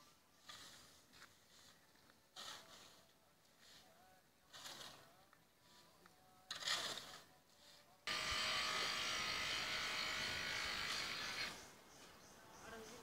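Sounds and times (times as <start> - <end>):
small machine whirring buzz: 8.1 - 11.7.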